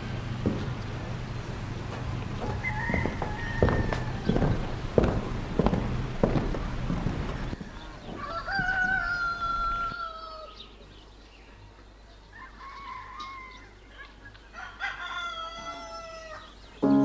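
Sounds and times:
roosters crowing: 0:00.0 - 0:10.7, 0:12.3 - 0:13.8, 0:14.5 - 0:17.0.

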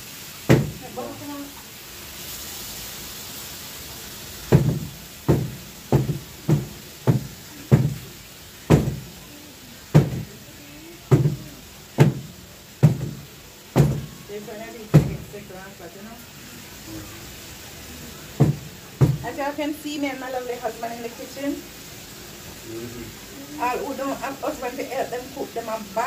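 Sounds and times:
food frying in a pan: 0:00.0 - 0:26.0
chopping on a cutting board: 0:00.5 - 0:00.8, 0:04.6 - 0:08.0, 0:13.8 - 0:14.1, 0:18.4 - 0:19.2.

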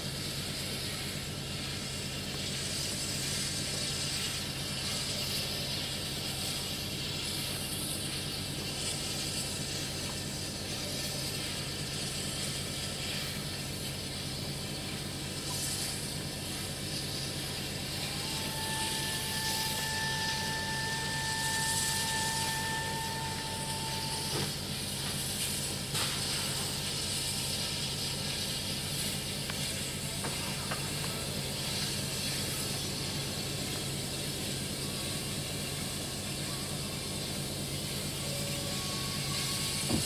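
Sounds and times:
locomotive hissing: 0:00.0 - 0:40.0
thin high whine: 0:00.0 - 0:40.0
low hum: 0:15.6 - 0:26.2.

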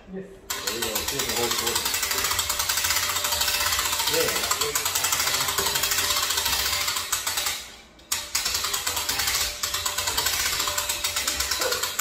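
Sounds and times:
winch ratchet clicking: 0:00.5 - 0:12.0.

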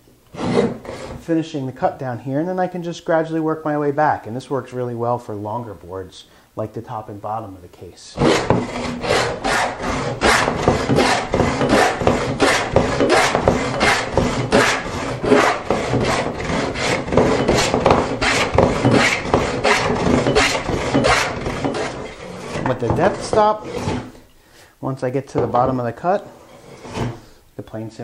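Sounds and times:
plane rasping through wood: 0:00.3 - 0:01.2, 0:08.2 - 0:24.2, 0:25.4 - 0:27.2.

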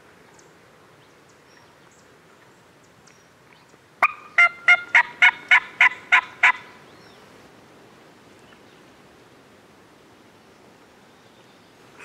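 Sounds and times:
turkey yelps: 0:04.0 - 0:06.6.

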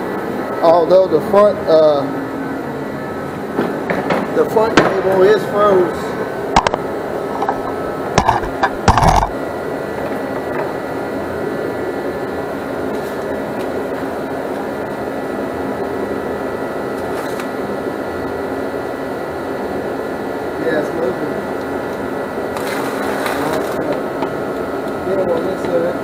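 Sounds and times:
forced-air heater humming: 0:00.0 - 0:26.0
knocks and clatter: 0:07.4 - 0:09.4.

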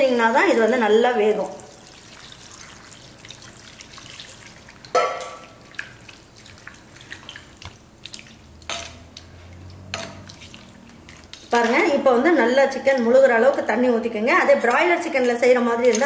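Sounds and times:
water pouring into a pot: 0:01.2 - 0:12.0.

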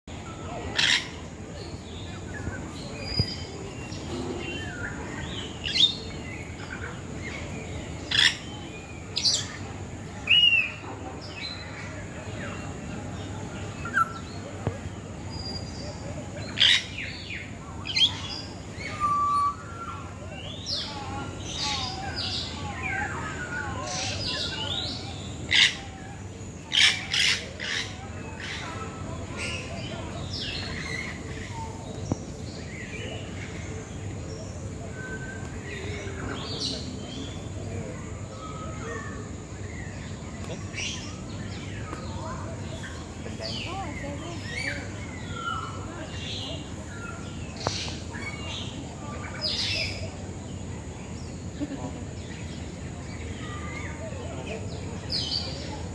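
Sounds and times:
birds chirping: 0:00.1 - 0:55.9
loud sharp bird calls: 0:16.4 - 0:25.9
thin whistled bird notes: 0:17.9 - 0:20.9.

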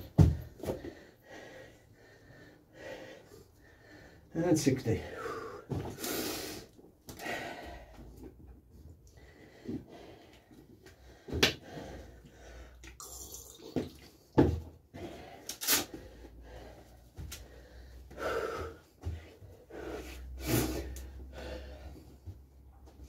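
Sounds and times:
workout thuds: 0:00.0 - 0:00.8
man breathing hard: 0:00.2 - 0:04.3, 0:05.0 - 0:13.0, 0:14.9 - 0:22.9.

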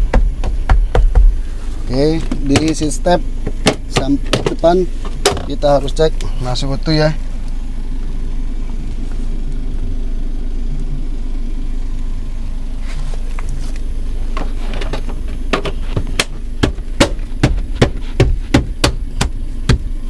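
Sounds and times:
sharp knocks and clicks: 0:00.0 - 0:01.3, 0:03.4 - 0:05.6, 0:14.8 - 0:19.9
vehicle engine humming: 0:00.0 - 0:20.0.

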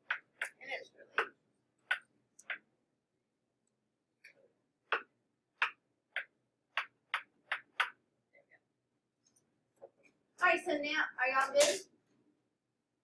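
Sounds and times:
stylus tapping on tablet screen: 0:00.0 - 0:02.7, 0:04.2 - 0:08.0.

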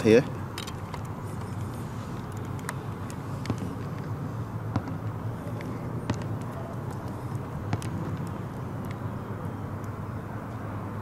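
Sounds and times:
test leads clicking and tapping: 0:00.5 - 0:09.0.

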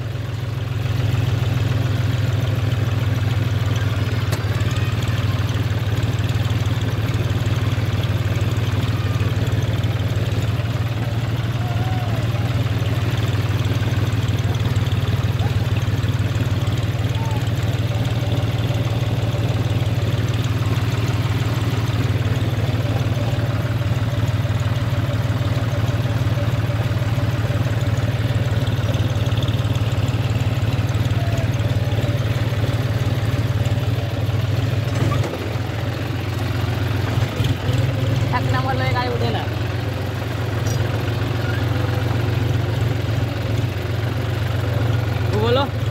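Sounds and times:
tractor diesel engine chugging: 0:00.0 - 0:45.9.

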